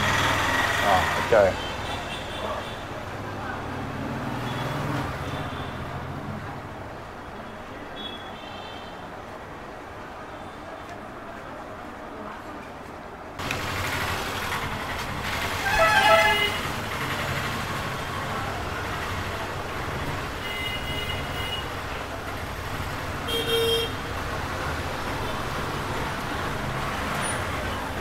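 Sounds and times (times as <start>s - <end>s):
street traffic: 0.0s - 28.0s
vehicle horns honking: 15.6s - 16.8s, 20.4s - 21.8s, 23.3s - 24.0s.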